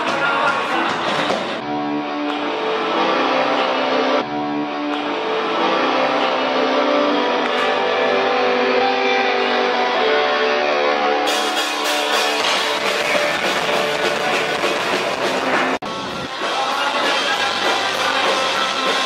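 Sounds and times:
electric guitar chords ringing: 0:01.6 - 0:16.5.

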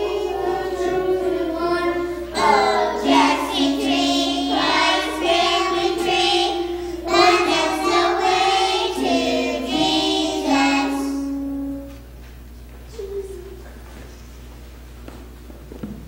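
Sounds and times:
children singing: 0:00.0 - 0:11.6.

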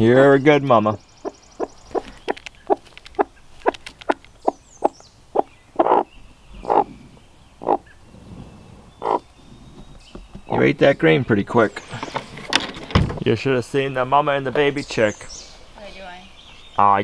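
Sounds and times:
hen clucking: 0:01.2 - 0:10.1.

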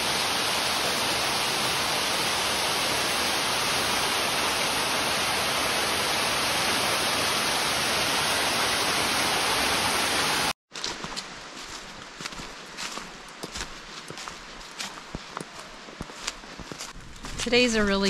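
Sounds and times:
waterfall rushing: 0:00.0 - 0:10.6.

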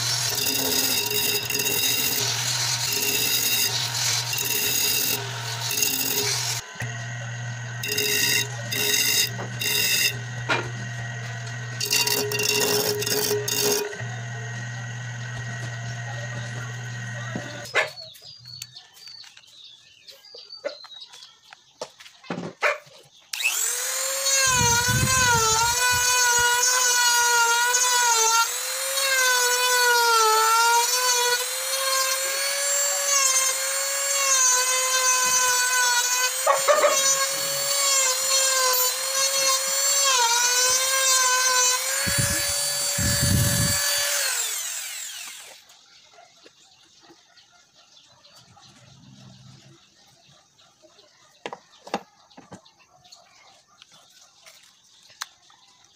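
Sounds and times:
disc sander sanding wood: 0:00.0 - 0:17.7, 0:23.4 - 0:45.7
rotary tool whining carving wood: 0:00.0 - 0:17.8, 0:23.3 - 0:45.7.

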